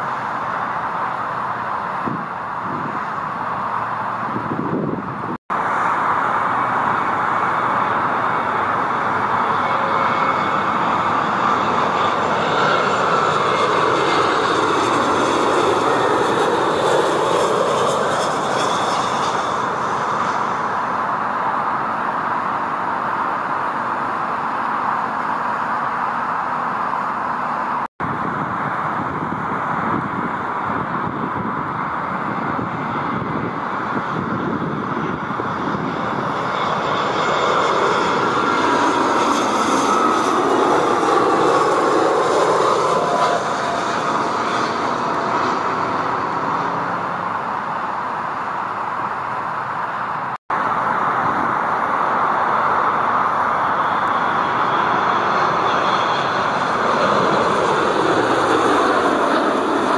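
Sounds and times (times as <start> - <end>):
airliner engines passing by: 0.0 - 59.9.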